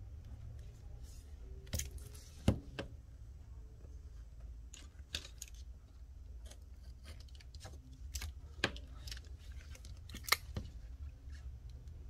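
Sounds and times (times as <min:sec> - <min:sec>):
tape clicks and crinkles: 0:06.4 - 0:12.0.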